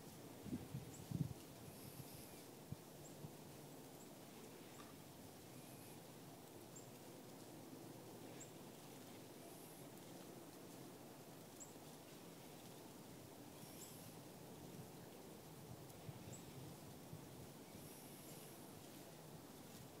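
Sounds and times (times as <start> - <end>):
faint high chirps: 13.5 - 14.2.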